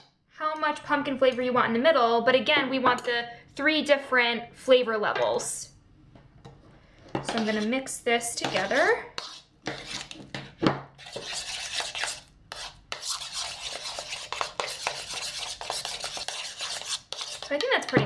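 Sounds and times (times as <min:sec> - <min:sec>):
spoon stirring in a bowl: 0:06.4 - 0:18.0.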